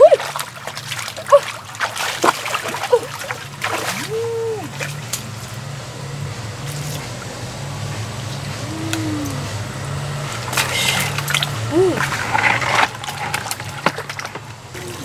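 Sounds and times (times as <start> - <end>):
water splashing and sloshing: 0.0 - 5.8, 6.5 - 15.0
low steady hum: 0.0 - 15.0
rising and falling tonal call: 8.5 - 9.8.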